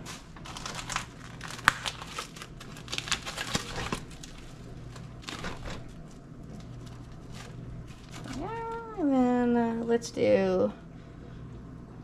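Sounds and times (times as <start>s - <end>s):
plastic packaging crinkling and tearing: 0.0s - 9.0s.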